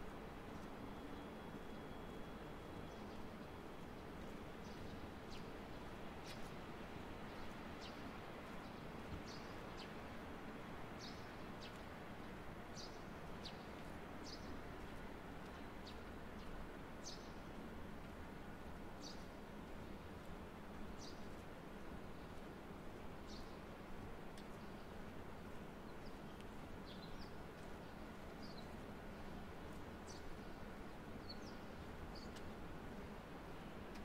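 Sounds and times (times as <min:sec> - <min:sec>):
small birds chirping: 0:25.8 - 0:32.5.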